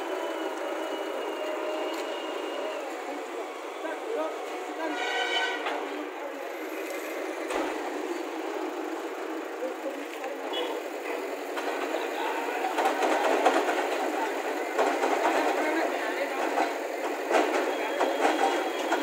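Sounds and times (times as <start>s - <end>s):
diesel engine under load: 0.0s - 4.8s.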